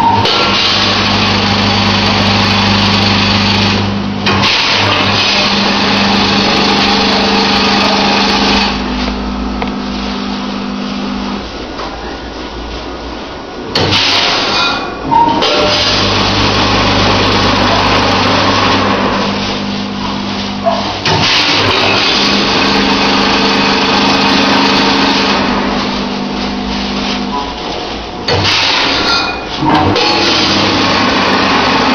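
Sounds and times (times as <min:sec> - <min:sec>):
feeder motor humming: 0:00.0 - 0:11.4, 0:15.4 - 0:20.6.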